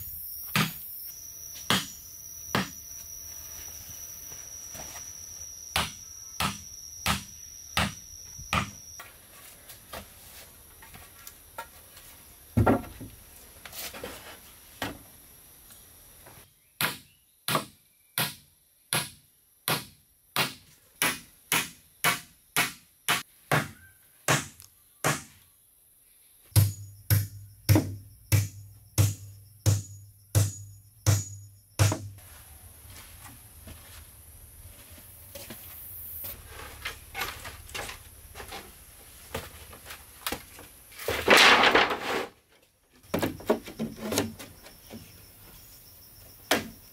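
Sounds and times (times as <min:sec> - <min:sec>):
hammer blows on wooden boards: 0:01.6 - 0:02.8, 0:05.7 - 0:08.8, 0:16.8 - 0:25.4, 0:26.5 - 0:32.2.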